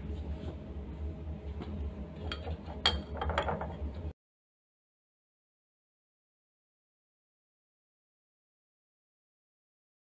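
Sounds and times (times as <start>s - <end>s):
steady low hum: 0.0s - 4.1s.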